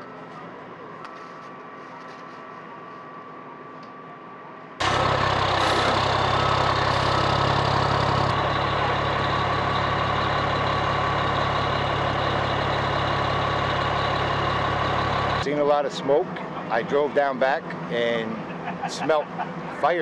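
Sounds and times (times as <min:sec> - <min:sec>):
fire engine idling: 0:04.4 - 0:20.0.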